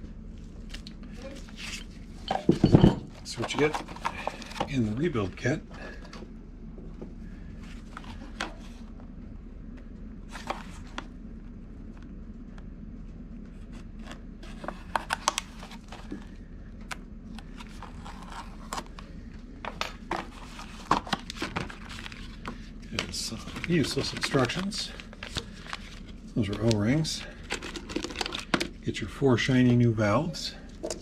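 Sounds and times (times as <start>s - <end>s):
steady low hum: 0.0s - 31.0s
plastic package crinkling: 20.1s - 28.7s.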